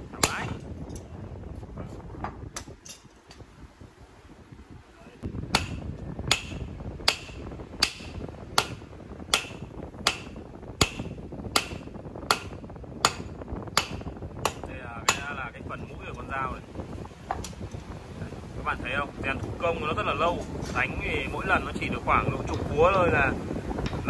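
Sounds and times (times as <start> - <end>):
hammer blows on metal anvil: 5.5 - 15.4.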